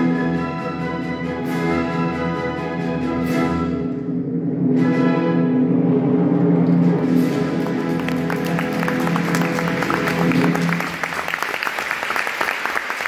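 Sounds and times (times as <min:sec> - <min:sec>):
audience applause: 0:07.4 - 0:13.0.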